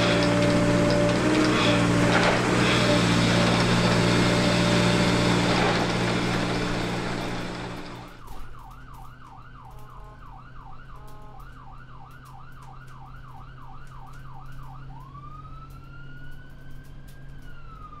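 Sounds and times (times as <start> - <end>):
emergency vehicle siren: 0.0 - 18.0.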